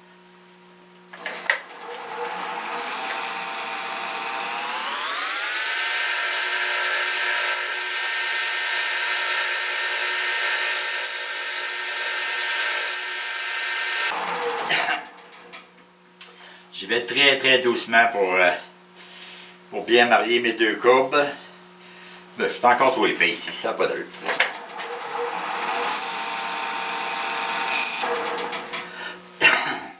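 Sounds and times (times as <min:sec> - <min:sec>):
wood lathe motor whine: 0:01.2 - 0:14.8, 0:24.3 - 0:29.2.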